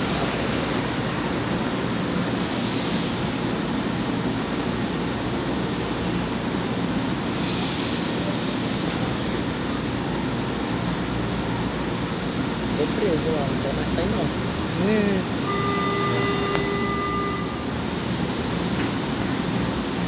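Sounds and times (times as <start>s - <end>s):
train equipment low rumble: 0.0s - 20.0s
short high hisses: 2.4s - 3.7s, 7.3s - 8.4s.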